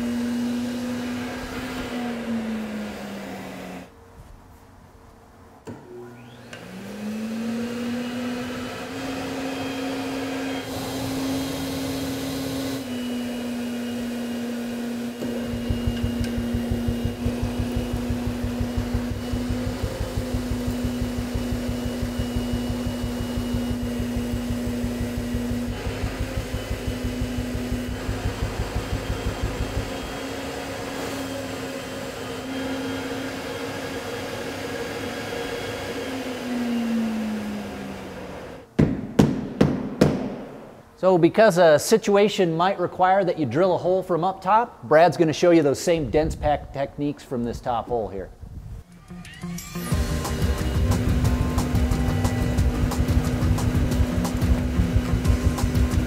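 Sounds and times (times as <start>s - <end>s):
blower machine hum: 0.0s - 4.0s, 5.6s - 38.7s, 48.8s - 56.0s
fast regular pulsing: 15.5s - 30.4s.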